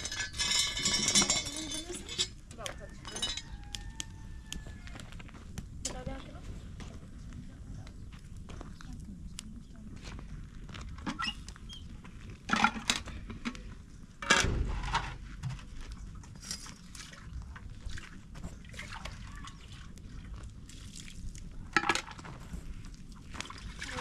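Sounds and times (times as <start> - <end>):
water pouring and splashing: 16.2 - 24.0.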